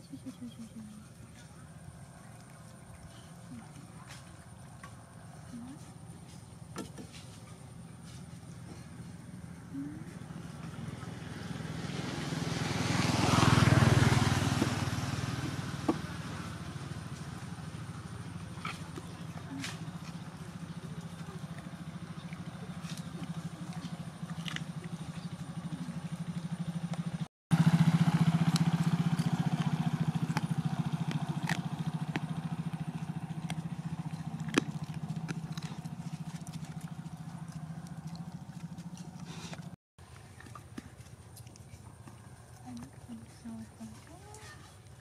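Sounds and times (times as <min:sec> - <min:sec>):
small motorcycle engine running: 0:07.7 - 0:39.8.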